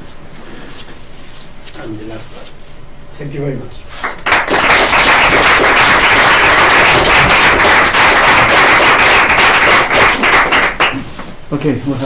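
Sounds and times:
audience applauding: 4.0s - 11.1s.

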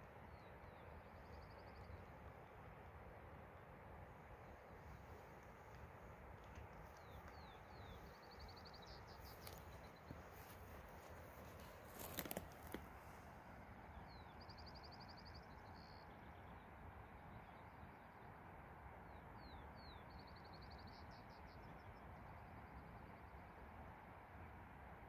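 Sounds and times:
songbird singing trills: 0.3s - 2.2s, 6.8s - 12.8s, 13.8s - 18.3s, 19.1s - 23.5s.

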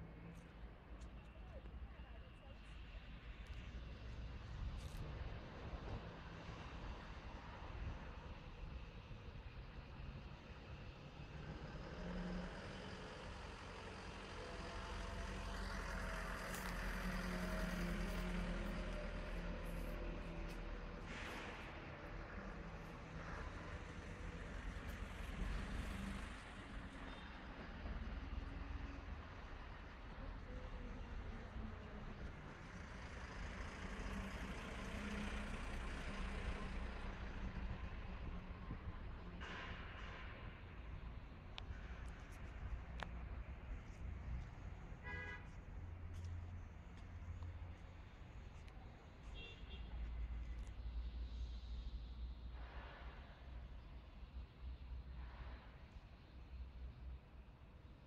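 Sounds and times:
diesel truck engine: 10.5s - 49.2s.

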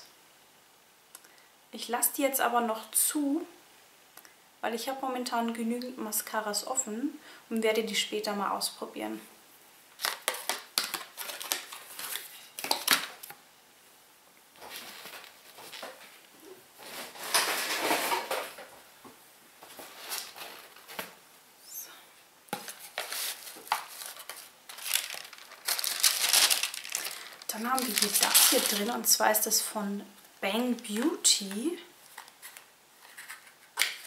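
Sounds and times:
packaging rustling: 10.0s - 13.4s, 14.6s - 18.6s, 19.6s - 21.2s, 22.5s - 29.2s, 32.0s - 34.0s.

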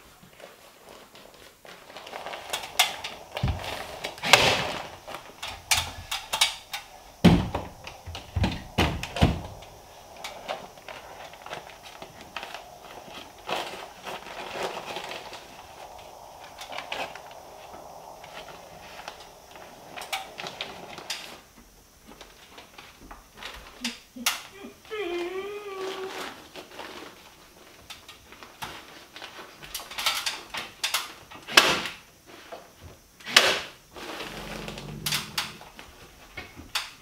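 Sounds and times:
insulation rustling and knocking: 0.0s - 23.9s.

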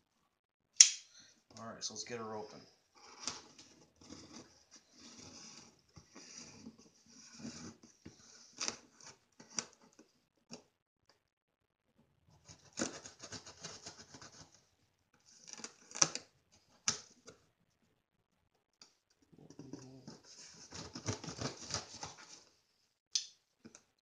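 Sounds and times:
cardboard rubbing: 3.0s - 9.9s, 12.4s - 14.6s, 20.0s - 22.5s
knife cutting packing tape: 12.5s - 14.4s, 20.5s - 22.2s.

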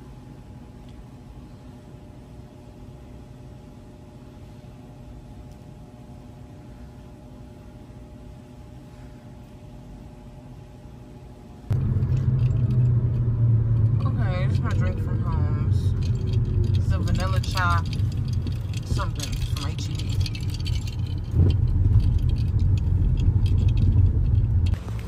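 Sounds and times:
faint room hum: 0.0s - 11.8s
car cabin rumble: 11.7s - 25.0s.

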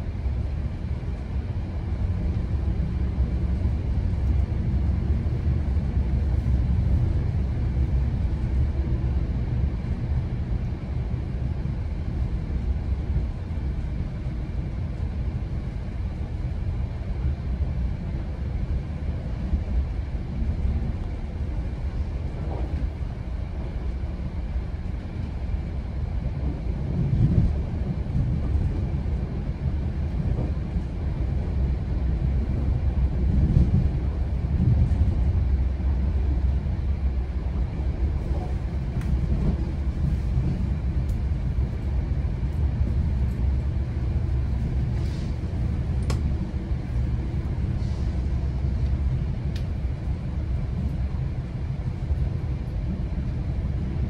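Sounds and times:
train rumbling along track: 0.0s - 54.0s.

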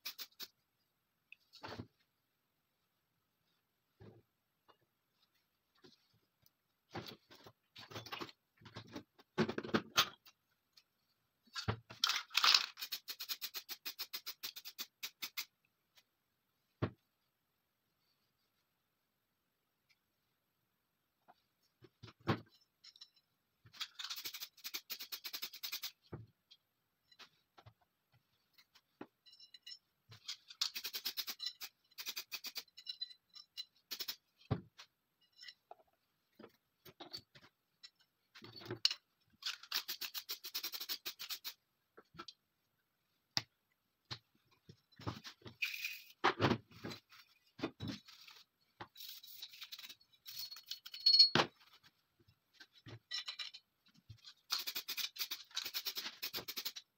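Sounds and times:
small steel parts clicking: 11.5s - 15.5s, 22.8s - 26.6s, 29.2s - 34.2s, 38.8s - 41.6s, 49.0s - 51.4s, 53.1s - 56.9s.

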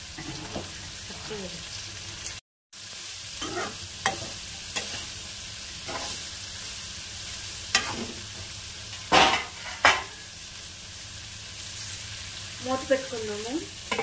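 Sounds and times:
vegetables sizzling in oil: 0.0s - 14.0s
spatula scraping metal pan: 0.2s - 0.7s, 3.4s - 5.1s, 5.9s - 6.2s, 7.7s - 8.2s.

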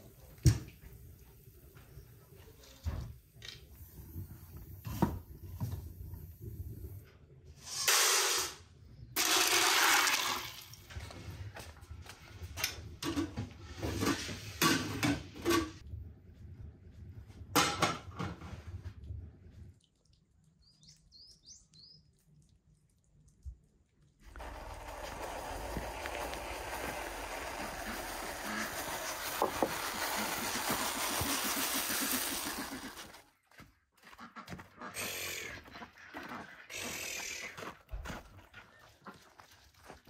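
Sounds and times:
water pouring over corn: 9.2s - 11.0s, 24.2s - 33.2s.

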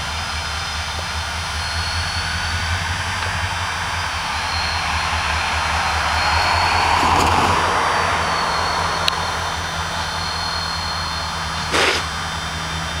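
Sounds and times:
diesel locomotives running: 0.0s - 13.0s
short rush of noise: 11.6s - 12.1s
sharp click: 11.7s - 12.1s.

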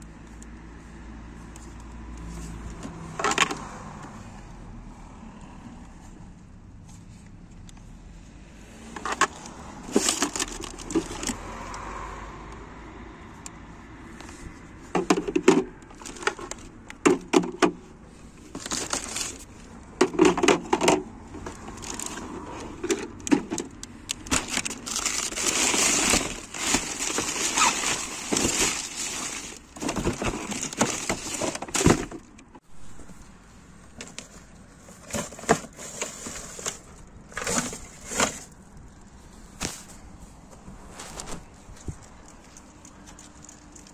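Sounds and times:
plastic bags rustling: 9.3s - 11.4s, 18.2s - 33.3s.

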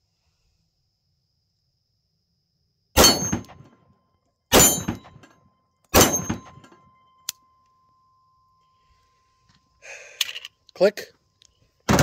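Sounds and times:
pistol shots: 3.0s - 3.7s, 4.5s - 5.3s, 5.9s - 6.7s.

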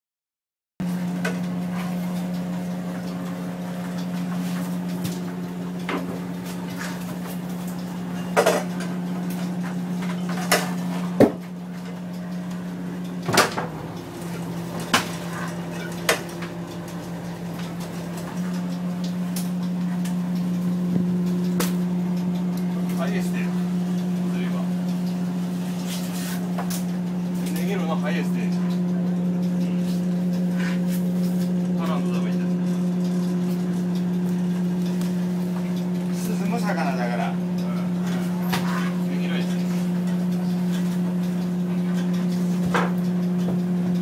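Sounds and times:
boat engine droning: 0.8s - 44.0s.

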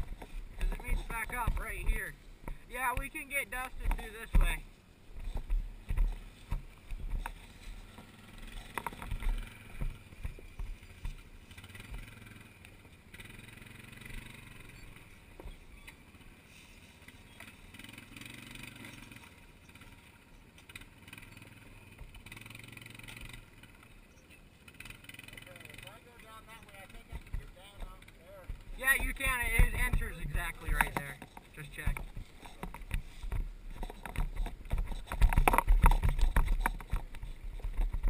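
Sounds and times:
knocks and low thumps: 0.0s - 4.6s, 8.8s - 11.2s, 27.0s - 38.0s
quad engine at low revs: 0.0s - 38.0s.

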